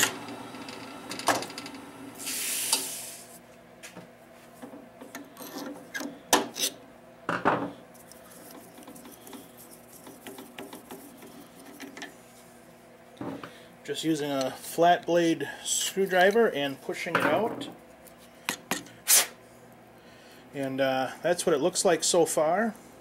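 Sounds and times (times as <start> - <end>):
short hiss: 2.2 - 3.4, 19.0 - 19.4
hands rubbing and scraping metal: 8.0 - 12.2.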